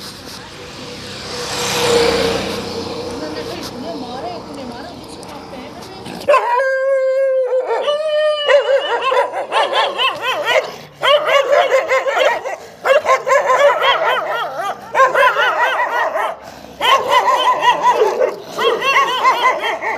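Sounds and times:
dogs barking aggressively: 0:06.1 - 0:19.9.

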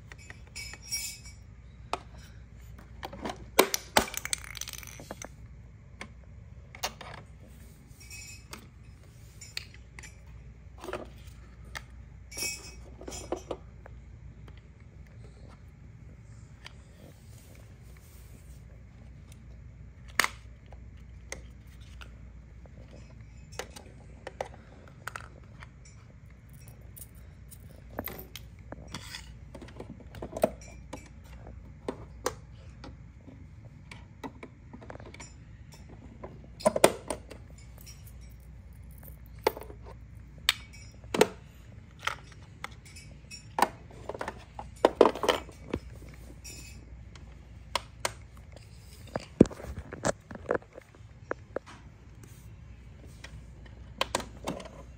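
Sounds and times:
plastic toys clattering: 0:00.0 - 0:05.4, 0:20.0 - 0:32.8, 0:34.3 - 0:46.8
plastic toy pieces clicking: 0:03.7 - 0:05.3.

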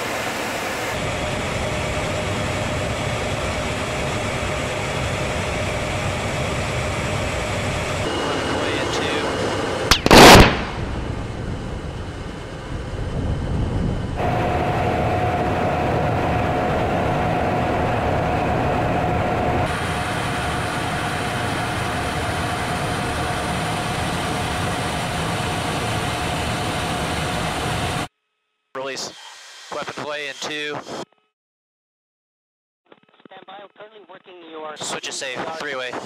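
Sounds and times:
jet engines and rushing air: 0:00.0 - 0:28.1
steady hum: 0:01.0 - 0:28.1
loud explosion: 0:09.9 - 0:14.3.

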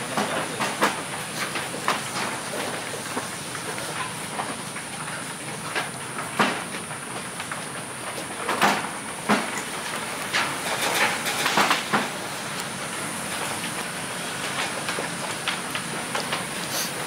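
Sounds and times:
goats rustling and crunching hay: 0:09.5 - 0:17.0
steady high hiss: 0:09.8 - 0:17.0.

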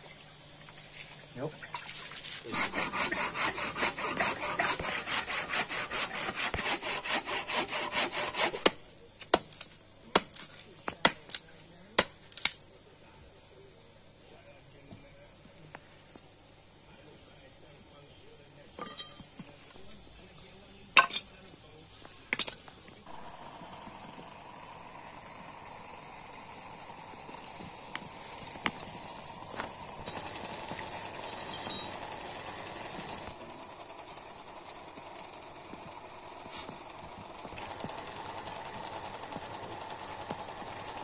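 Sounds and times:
handsaw cutting wood: 0:02.4 - 0:08.8, 0:23.1 - 0:34.5, 0:35.2 - 0:41.0
wood pieces knocking: 0:21.0 - 0:21.3, 0:22.3 - 0:22.7.

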